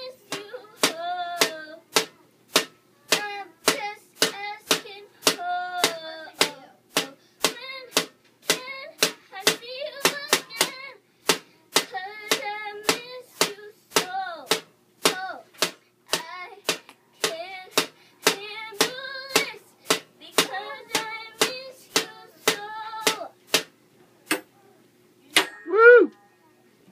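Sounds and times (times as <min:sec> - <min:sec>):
child singing: 0:00.0 - 0:02.2, 0:03.0 - 0:11.0, 0:11.7 - 0:15.5, 0:16.1 - 0:23.4
drum beat: 0:00.0 - 0:23.8.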